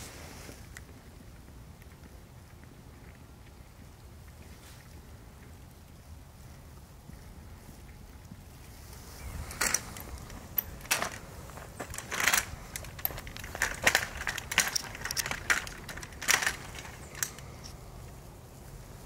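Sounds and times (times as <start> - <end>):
footsteps crunching through dry grass: 6.5 - 19.0.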